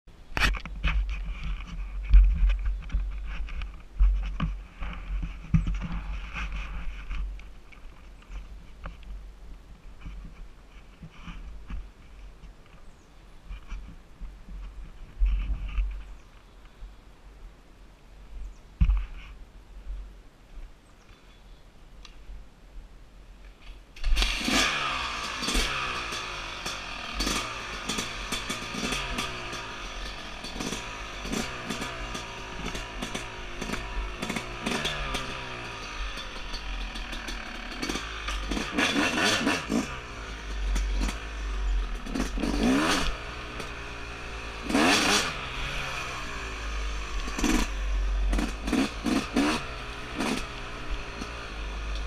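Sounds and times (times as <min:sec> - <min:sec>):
dirt bike engine revving: 0:24.0 - 0:52.0.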